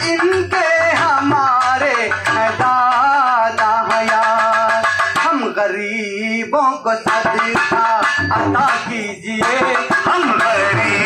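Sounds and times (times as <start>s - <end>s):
hand drum beat: 0.0s - 5.5s, 7.1s - 11.0s.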